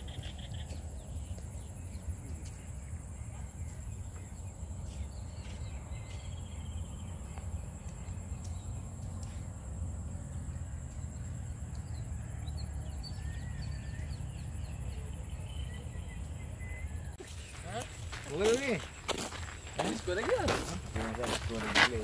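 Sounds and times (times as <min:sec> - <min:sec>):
wind rumble on microphone: 0:00.0 - 0:12.0
bird chirps: 0:00.0 - 0:22.0.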